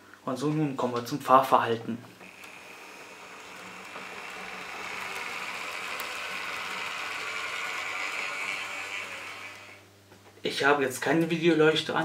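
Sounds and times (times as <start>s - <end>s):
model train motor whirring: 2.2s - 9.9s.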